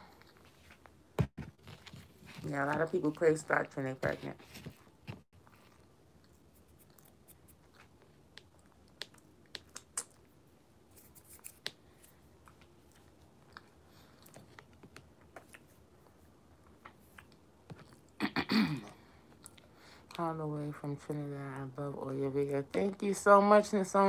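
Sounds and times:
crunchy food being chewed: 4.7 - 18.2.

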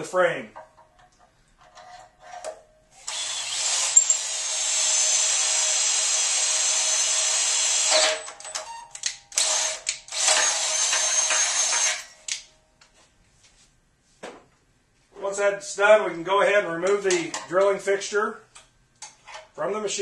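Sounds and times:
cordless drill boring metal: 3.0 - 8.6, 9.3 - 12.2.

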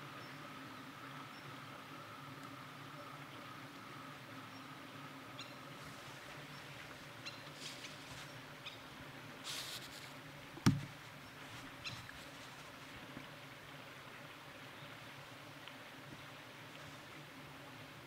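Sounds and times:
sharp knock: 10.6 - 10.9.

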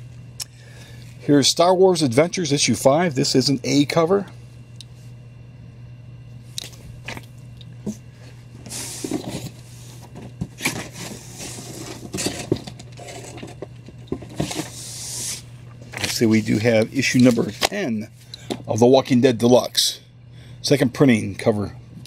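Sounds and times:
steady low hum: 0.0 - 22.0
paper rustling slides: 8.6 - 13.4, 14.3 - 17.7.

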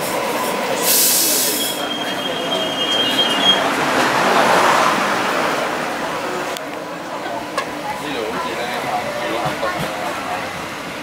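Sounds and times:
rail car rumbling past: 0.0 - 11.0
high wheel squeal: 0.2 - 3.8
burst of hiss: 0.8 - 1.8.

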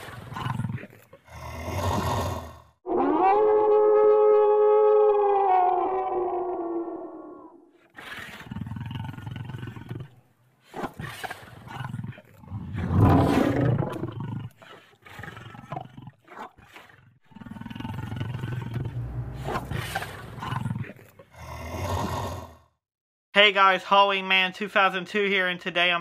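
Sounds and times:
animatronic werewolf roaring: 0.3 - 10.1, 11.7 - 15.9, 17.3 - 22.7.

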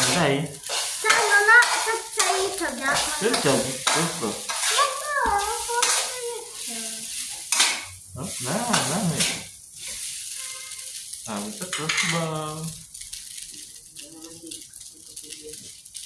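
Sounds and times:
rice sizzling in a pan: 0.0 - 16.0
metal spatula scraping a pan: 0.6 - 12.3.

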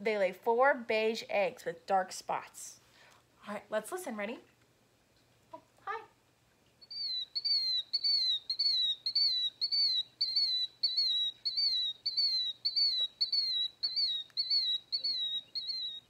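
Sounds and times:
bird calls from small speaker: 6.8 - 16.0.

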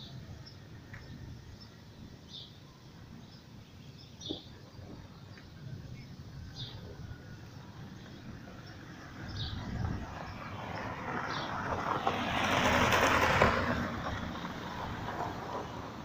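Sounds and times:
vehicle passing by: 7.7 - 16.0.

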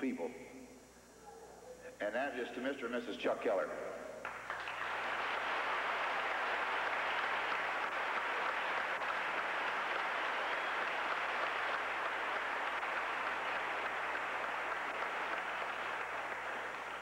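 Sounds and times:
audience applauding: 4.2 - 17.0.

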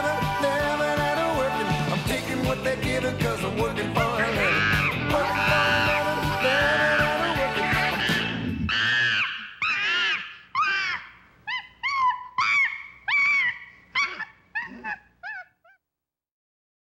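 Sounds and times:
high-pitched animal calls: 4.1 - 15.8.

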